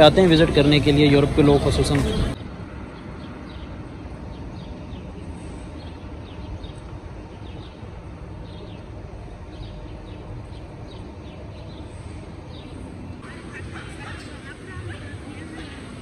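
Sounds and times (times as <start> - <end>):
birds chirping: 0.0 - 16.0
low traffic hum: 0.0 - 16.0.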